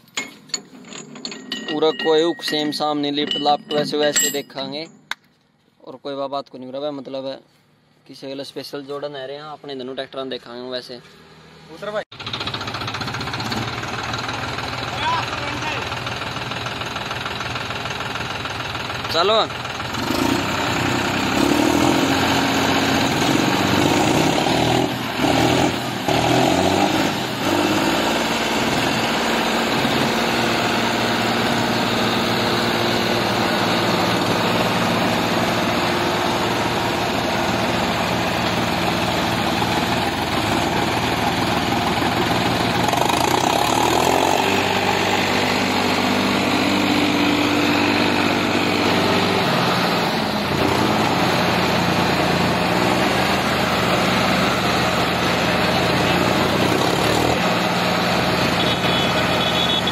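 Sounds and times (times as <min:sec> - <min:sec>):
tractor diesel engines under load: 0:00.0 - 0:59.9.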